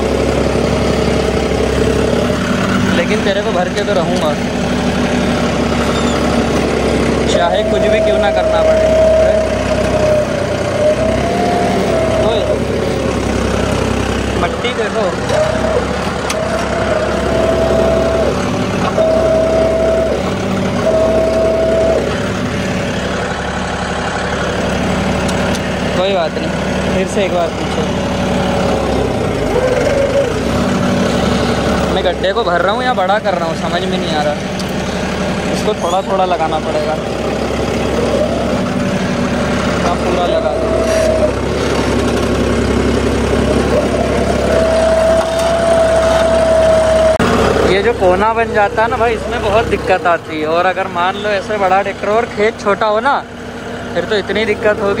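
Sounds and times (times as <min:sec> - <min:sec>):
diesel tractor engine running: 0:00.0 - 0:55.0
high-pitched tone: 0:05.8 - 0:13.2, 0:15.3 - 0:23.3, 0:37.8 - 0:41.4
high steady whine: 0:07.1 - 0:12.6, 0:14.4 - 0:23.4.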